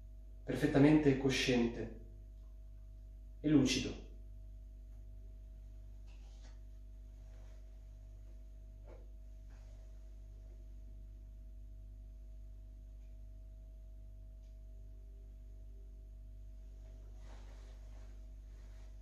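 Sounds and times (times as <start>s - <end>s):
low hum with faint tones: 0.0s - 19.0s
soft rustles: 5.9s - 10.6s, 16.7s - 19.0s.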